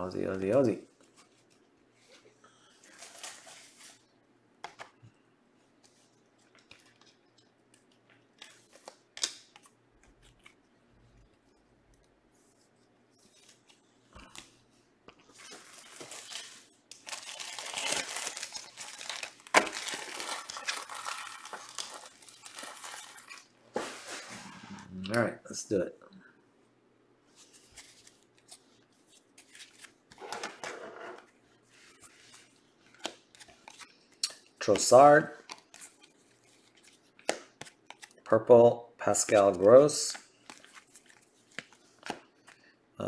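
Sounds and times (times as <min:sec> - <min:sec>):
card pack wrappers tearing and crinkling: 0:15.5 - 0:23.5.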